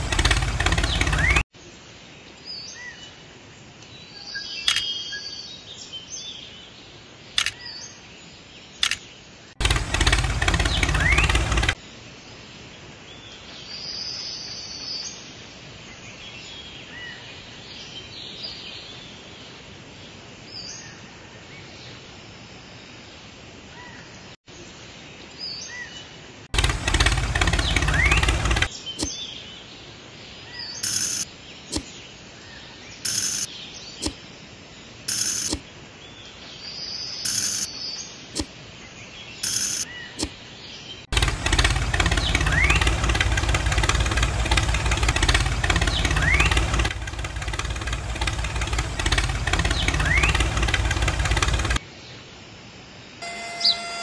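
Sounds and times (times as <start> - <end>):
loud bursts of noise: 0.0 - 1.4, 9.6 - 11.8, 26.6 - 28.7, 41.1 - 51.8
small birds chirping: 0.0 - 1.4, 3.8 - 11.8, 26.6 - 51.8.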